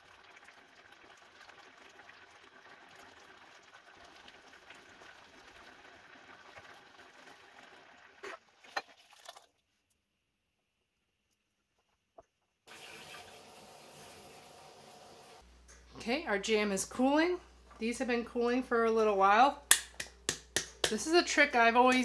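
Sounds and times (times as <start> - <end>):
jam bubbling in a saucepan: 0.0 - 9.6.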